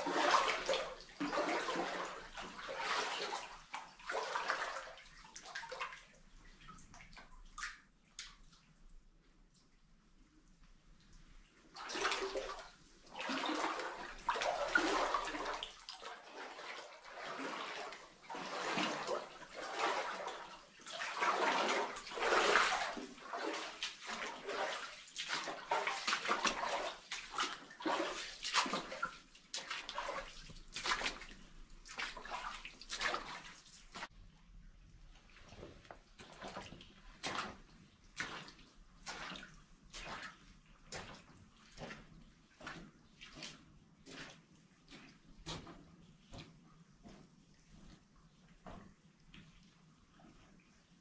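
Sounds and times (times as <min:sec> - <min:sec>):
footsteps splashing in shallow water: 0:00.0 - 0:08.5, 0:11.6 - 0:34.1, 0:35.2 - 0:50.6.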